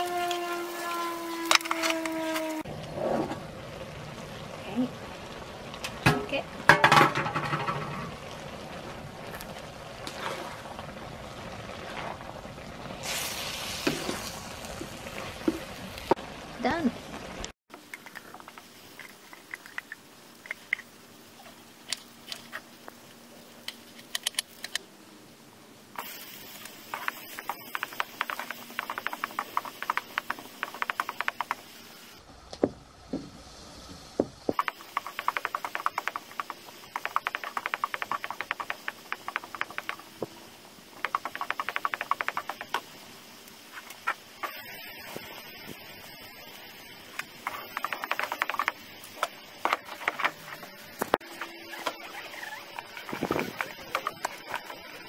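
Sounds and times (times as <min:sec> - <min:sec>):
onions frying with crackling sizzle: 0:00.0 - 0:24.6, 0:25.9 - 0:55.0.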